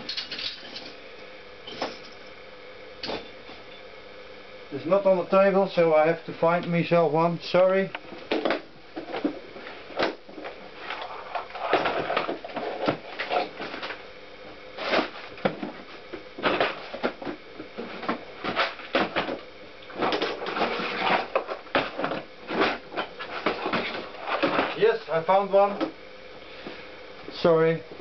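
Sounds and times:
metal tools clattering: 0.0 - 1.0.

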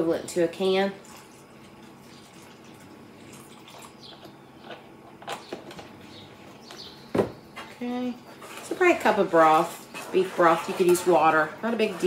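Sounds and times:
liquid trickling into pot: 0.9 - 4.0.

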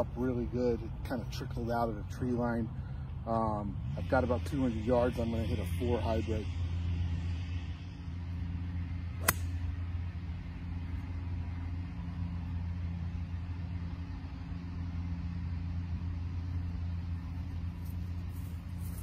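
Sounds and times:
golf club striking ball: 9.2 - 9.8.

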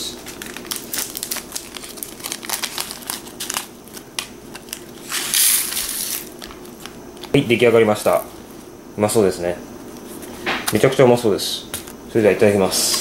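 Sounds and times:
foil candy packet crinkling: 0.1 - 7.4.

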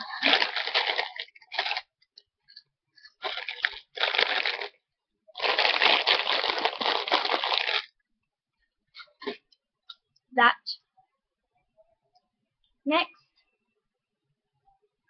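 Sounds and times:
plastic wrapper crinkling: 0.0 - 1.9, 3.2 - 4.8, 5.4 - 7.9.

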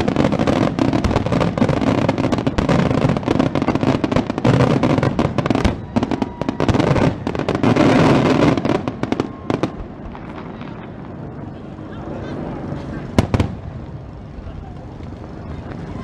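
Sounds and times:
firework shell bursts and crackling: 0.0 - 11.2.

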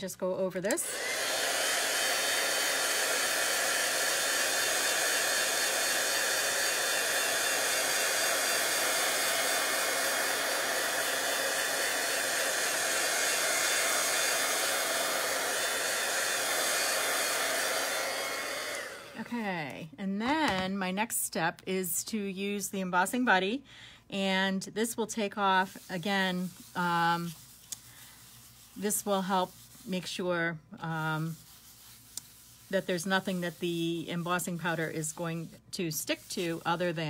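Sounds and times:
heat gun fan blowing: 0.6 - 19.3.

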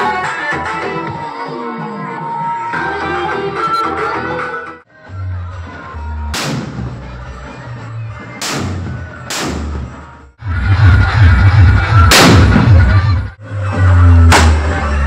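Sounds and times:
music with heavy bass beat: 8.4 - 15.0
firecracker bangs: 12.1 - 12.8.

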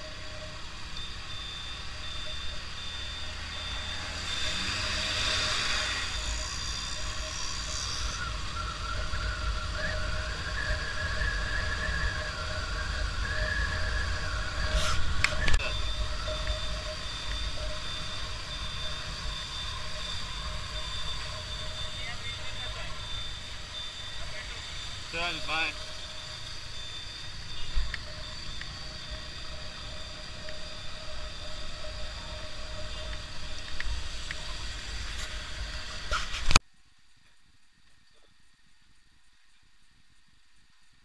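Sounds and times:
road hiss: 13.9 - 36.6.

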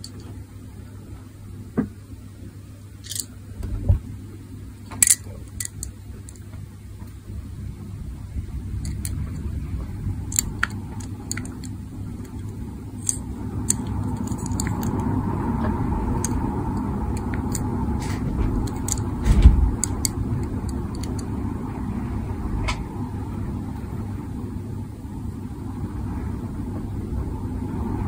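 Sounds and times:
steady low rumble: 0.0 - 28.0
dull thump: 19.2 - 19.8
clicks and taps of toy car: 19.8 - 21.3.

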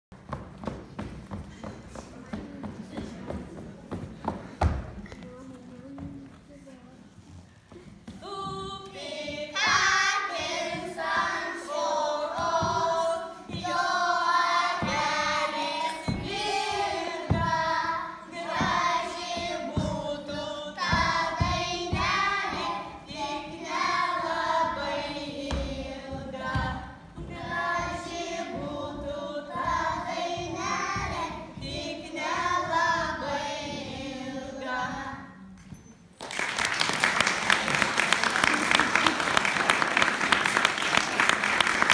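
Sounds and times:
children singing in unison: 8.2 - 35.3
applause: 36.2 - 41.9.

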